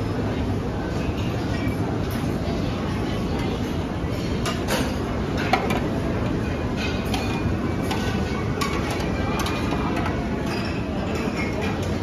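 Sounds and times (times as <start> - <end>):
restaurant background din: 0.0 - 12.0
utensils clinking on steel pans: 3.4 - 12.0.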